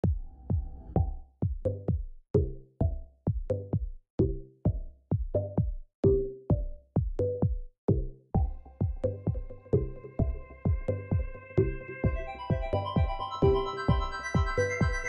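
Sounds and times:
intro music with bass-heavy beat: 0.0s - 15.0s.

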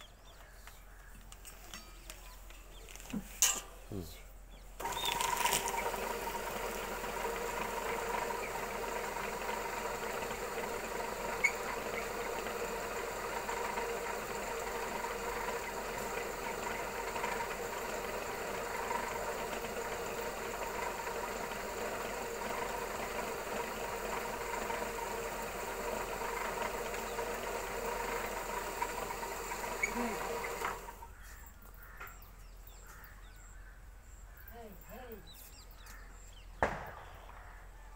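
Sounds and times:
machine mechanical hum: 0.0s - 37.9s.

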